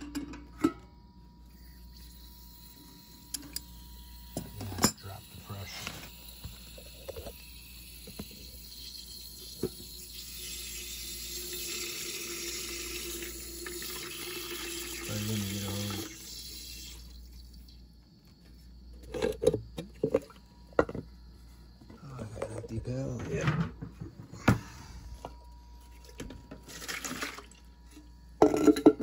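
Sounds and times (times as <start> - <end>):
water rushing into metal can: 8.0 - 17.2, 26.0 - 27.7.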